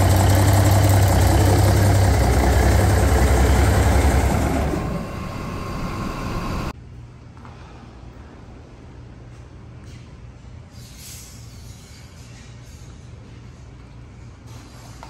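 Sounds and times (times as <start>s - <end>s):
diesel engine idling: 0.0s - 6.7s.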